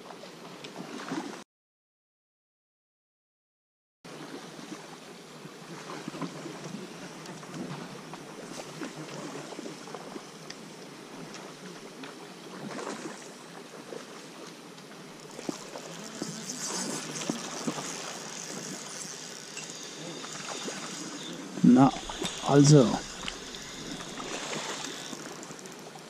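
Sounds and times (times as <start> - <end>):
faint ticks and clicks: 10.4 - 10.6, 21.9 - 26.0
rushing outdoor background noise: 15.2 - 25.8.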